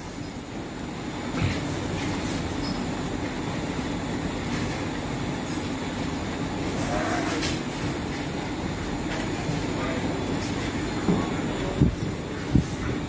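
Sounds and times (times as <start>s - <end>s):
machine motor and rollers humming: 0.0s - 13.0s.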